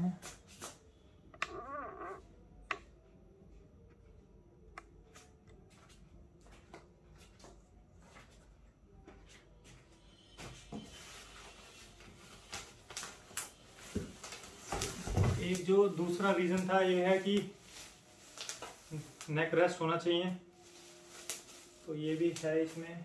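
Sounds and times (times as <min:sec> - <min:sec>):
cardboard and plastic rustling: 0:11.0 - 0:19.4.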